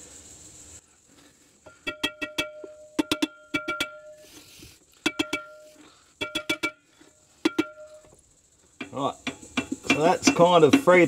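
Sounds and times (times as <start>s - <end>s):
hammer striking metal drum: 1.7s - 4.2s, 5.0s - 8.1s, 8.8s - 11.0s.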